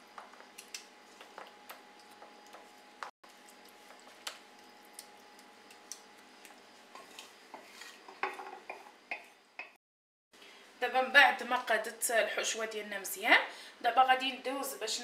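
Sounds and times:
spoon scraping pan: 0:06.8 - 0:09.4.

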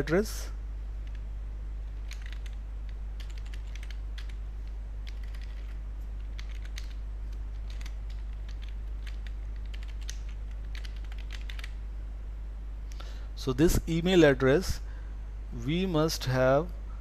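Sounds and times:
steady low hum: 0:00.0 - 0:17.0
keyboard typing: 0:01.0 - 0:01.2, 0:01.9 - 0:11.8.

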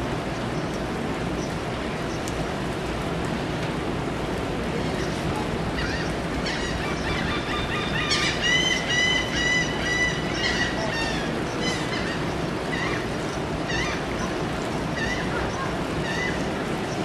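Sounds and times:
surf rushing: 0:00.0 - 0:17.0
wind: 0:00.0 - 0:17.0
gulls calling: 0:04.6 - 0:17.0.

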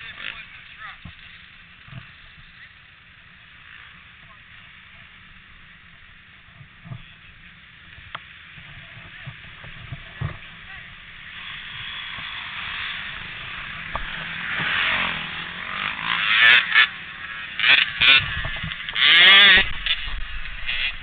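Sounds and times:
quad engine revving: 0:08.6 - 0:21.0.

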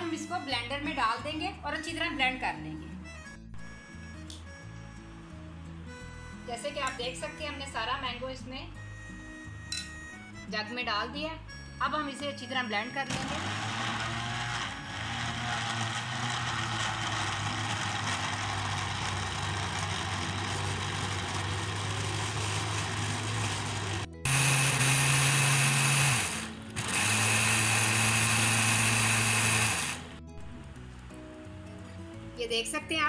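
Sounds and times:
blender running: 0:13.1 - 0:30.2.

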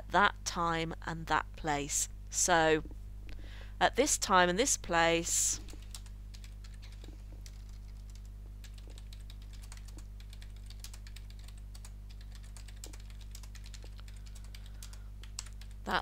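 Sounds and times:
steady low hum: 0:00.0 - 0:16.0
typing on computer keyboard: 0:05.7 - 0:15.8.

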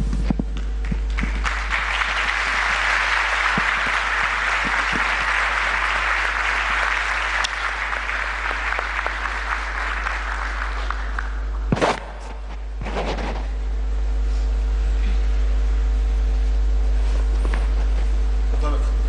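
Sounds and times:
large audience applauding: 0:00.8 - 0:11.7.

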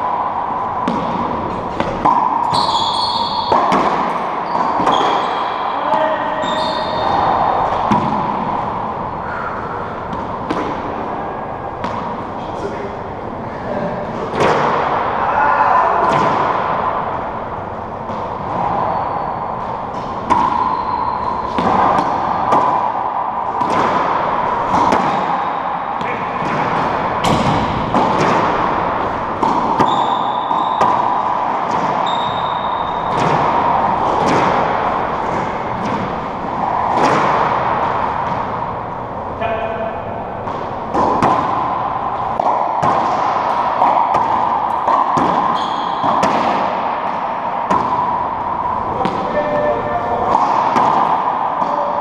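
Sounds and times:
racquetball hits echoing: 0:00.0 - 0:52.0
sneakers squeaking on hardwood: 0:01.6 - 0:08.2, 0:18.7 - 0:21.9, 0:29.7 - 0:34.4, 0:45.0 - 0:46.3.

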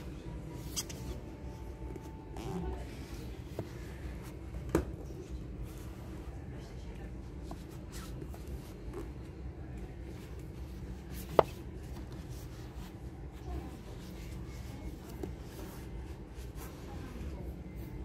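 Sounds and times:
low shop hum: 0:00.0 - 0:18.0
phone rubbing in hand: 0:00.5 - 0:04.4.

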